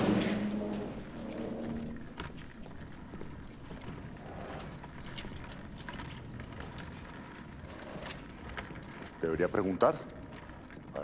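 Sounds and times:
low hum: 0.0s - 8.6s
footsteps: 0.0s - 11.0s.

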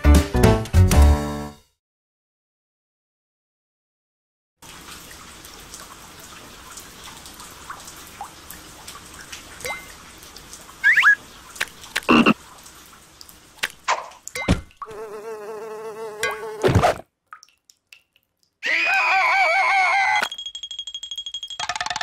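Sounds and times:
rising cartoon squeaks: 10.8s - 11.2s, 18.6s - 20.3s
cartoon frog croak: 12.1s - 12.4s.

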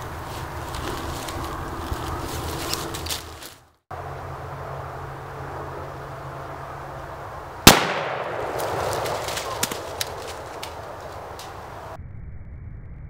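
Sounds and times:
rifle shot: 7.6s - 10.2s.

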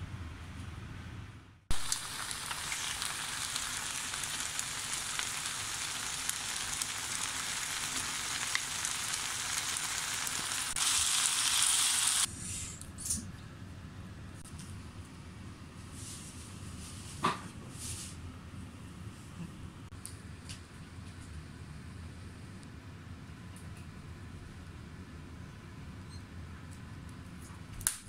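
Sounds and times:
food sizzling in a frying pan: 1.7s - 12.3s.

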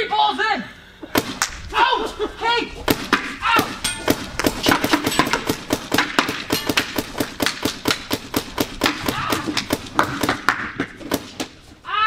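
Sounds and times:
paintball marker firing rapidly: 2.9s - 11.5s.

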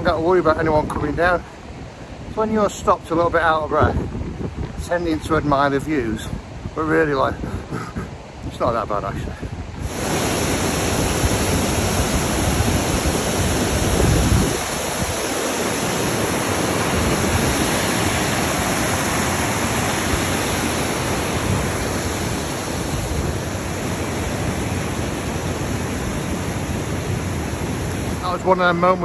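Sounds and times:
waterfall crashing over rocks: 9.8s - 29.0s.

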